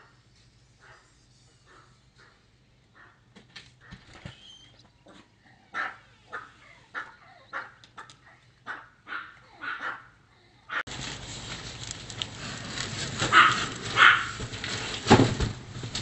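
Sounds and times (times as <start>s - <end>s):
dog barking: 5.7s - 8.1s, 8.7s - 10.8s, 13.3s - 14.4s.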